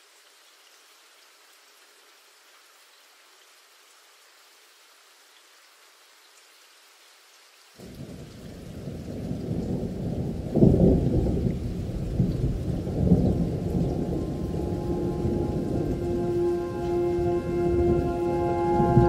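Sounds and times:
rain hiss: 0.0 - 19.0
thunder rumbling: 7.8 - 19.0.

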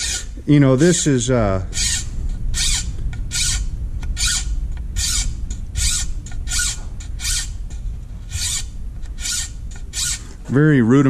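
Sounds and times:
file rasping on steel blade: 0.0 - 0.4, 4.2 - 7.6, 8.3 - 10.4.

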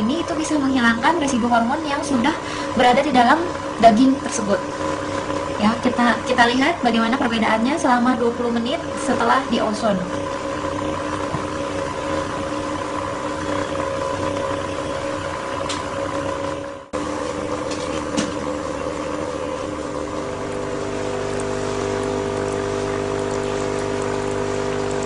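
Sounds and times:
air pump humming: 0.0 - 25.0
air bubbling through water: 10.2 - 25.0.

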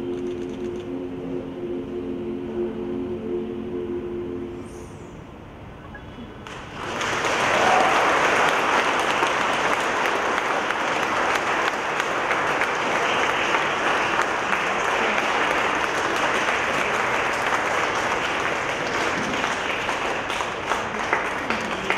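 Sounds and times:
audience applauding: 6.4 - 21.9.

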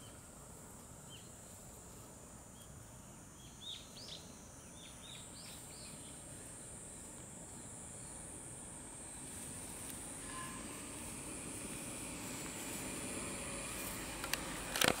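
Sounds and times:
high-pitched insect drone: 3.4 - 15.0
distant engine rumble: 7.0 - 15.0
sharp clicks: 14.2 - 15.0.

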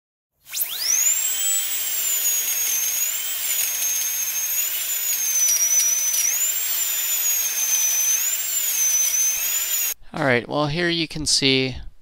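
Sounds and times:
high-pitched wavering whine: 0.5 - 10.0.

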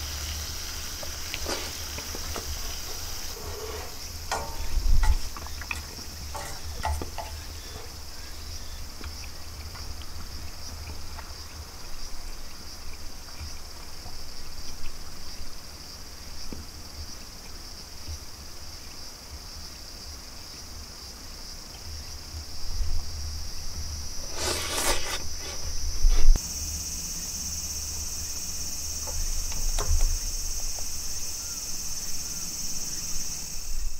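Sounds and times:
insects droning: 0.0 - 33.9
loud rasping burst: 0.7 - 8.0, 24.2 - 25.8.

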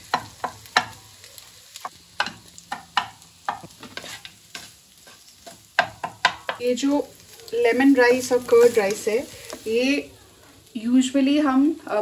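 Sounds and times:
faint sizzle: 0.0 - 12.0
wooden spatula scraping wok: 1.8 - 10.7.

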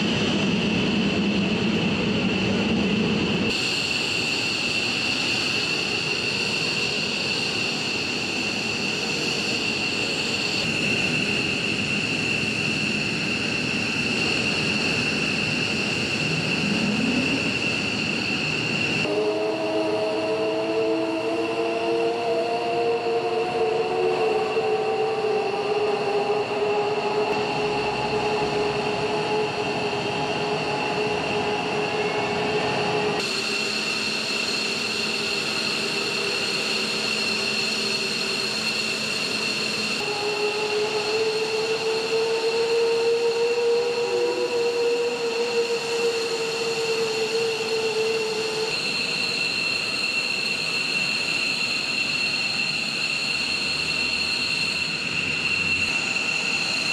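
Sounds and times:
jet engines whining at idle: 0.0 - 56.9.

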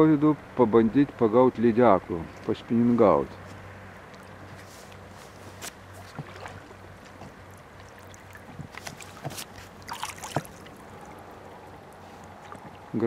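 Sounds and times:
water lapping at boat hull: 1.8 - 13.0
small splashes and knocks: 3.4 - 13.0.

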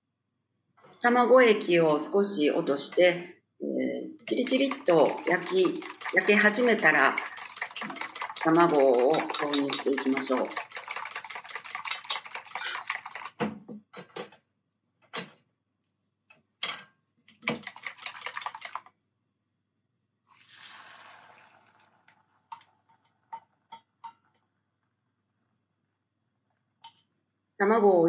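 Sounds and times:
chopsticks clicking in metal bowl: 4.3 - 13.3
egg sizzling in frying pan: 20.4 - 23.0.

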